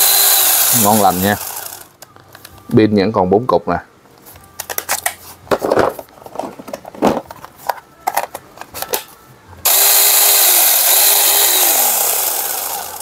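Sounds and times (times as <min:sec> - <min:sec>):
electric chainsaw whirring: 0:00.0 - 0:02.0, 0:09.6 - 0:13.0.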